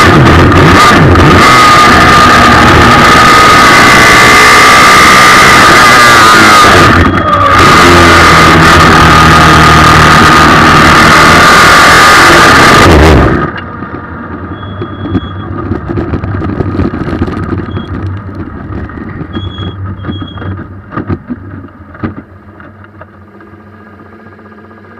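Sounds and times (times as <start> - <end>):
car rumbling and rattling over grass: 0.0 - 24.9
engine at full throttle: 0.0 - 24.9
short high-pitched beeps: 14.5 - 15.5, 17.6 - 18.0, 19.3 - 20.6.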